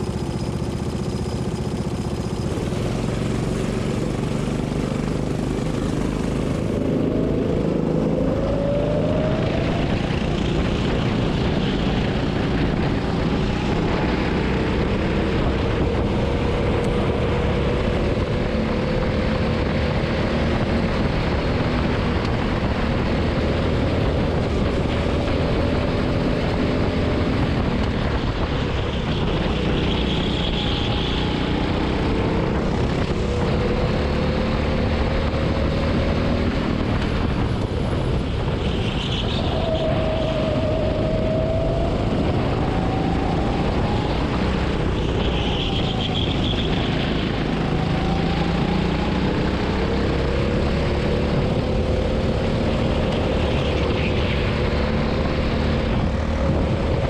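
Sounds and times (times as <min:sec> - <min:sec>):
go-kart engine revving: 0:00.0 - 0:57.0
steady rush of noise: 0:01.8 - 0:57.0.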